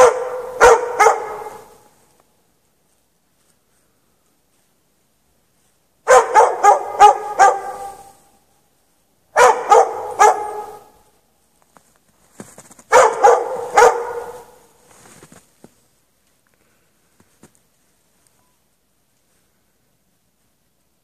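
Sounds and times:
dog barking: 0.0s - 1.8s, 6.1s - 8.3s, 9.4s - 11.0s, 12.9s - 14.7s.

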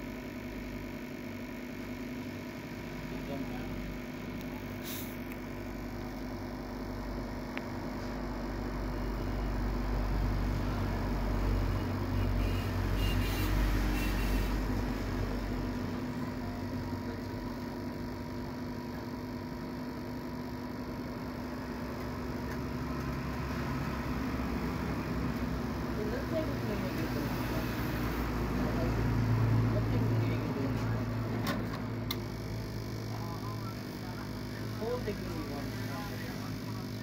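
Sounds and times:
hot air gun blowing: 4.7s - 5.3s.

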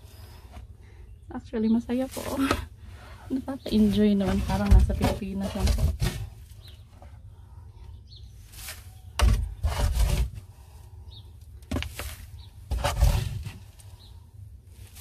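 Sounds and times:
scoop raking wood shavings: 8.4s - 10.4s, 11.7s - 13.9s.

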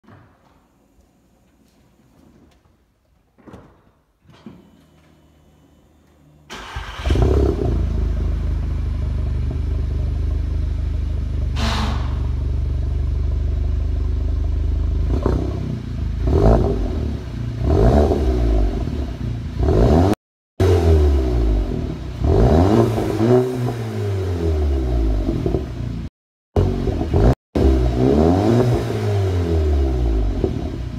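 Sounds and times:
car engine starting and idling: 4.6s - 19.9s
car engine revving: 6.5s - 30.9s.

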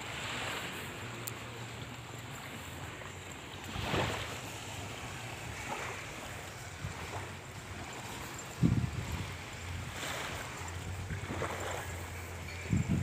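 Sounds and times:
sea waves at the shore: 0.0s - 13.0s
wind on microphone: 3.7s - 13.0s.

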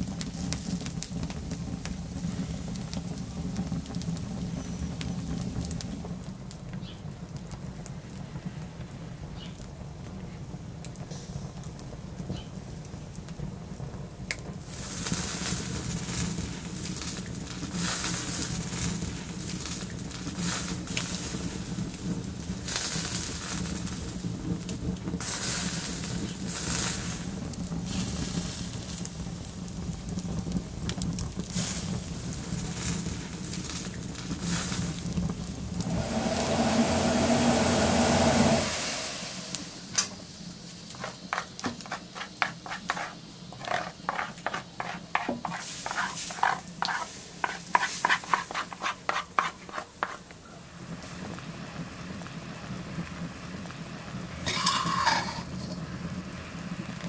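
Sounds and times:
burning logs crackling: 0.0s - 57.0s
skewers sizzling over fire: 0.0s - 57.0s
loud hum: 35.6s - 40.3s.

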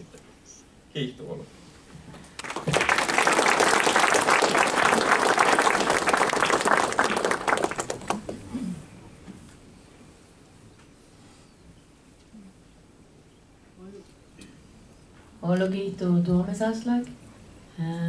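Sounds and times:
audience applauding: 2.4s - 8.6s.

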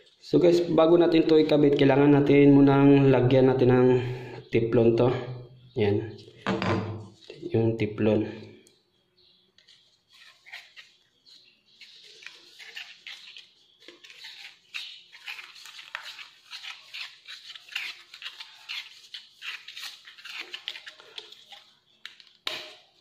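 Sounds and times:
thread tape squeaking and rustling: 9.4s - 23.0s.

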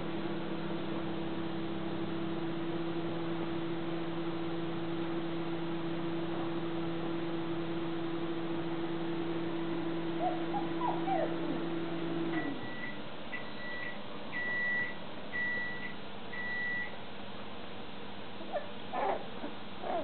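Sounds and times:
steady low hum: 0.0s - 20.0s
puppies whimpering: 10.2s - 11.6s, 18.4s - 20.0s.

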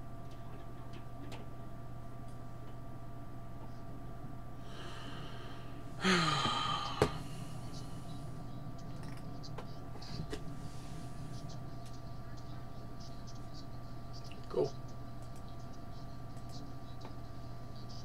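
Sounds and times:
steady electrical hum: 0.0s - 18.0s
man sighing: 4.7s - 7.5s.

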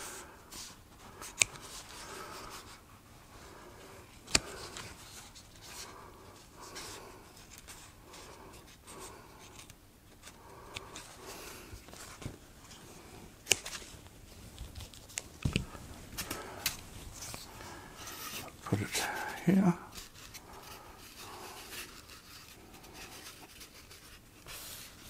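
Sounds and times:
scissors cutting strokes: 13.4s - 13.8s.

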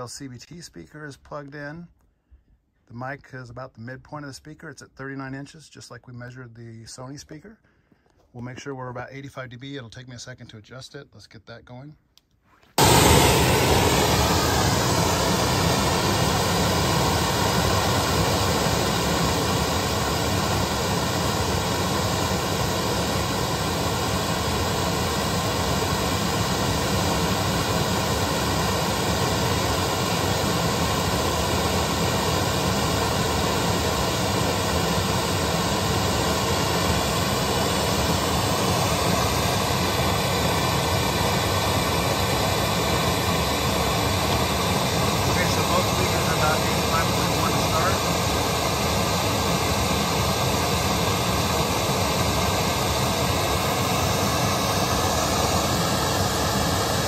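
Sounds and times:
hiss-like test noise: 12.8s - 57.0s.

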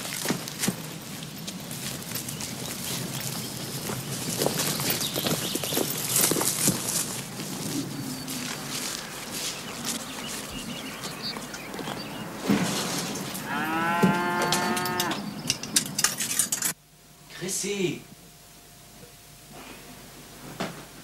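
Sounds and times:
outdoor background: 0.0s - 21.0s
cow mooing: 13.4s - 15.3s.

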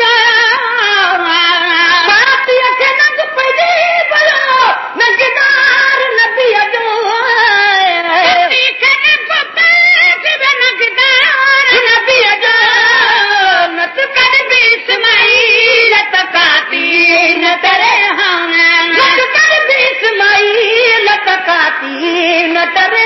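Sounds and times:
person singing devotional song: 0.0s - 23.0s.

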